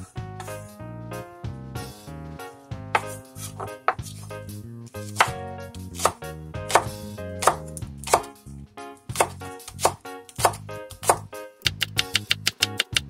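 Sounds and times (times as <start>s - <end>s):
cleaver chopping on wooden board: 3.0s - 4.3s, 5.0s - 8.3s, 9.1s - 11.3s.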